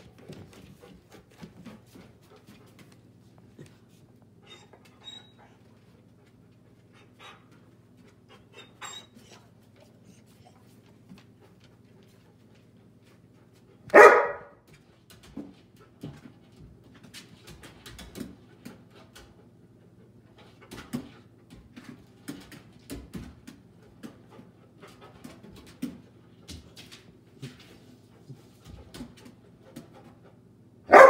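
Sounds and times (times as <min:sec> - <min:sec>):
dog barking: 0:13.9 - 0:14.6
dog claws clicking on tile: 0:16.9 - 0:19.4.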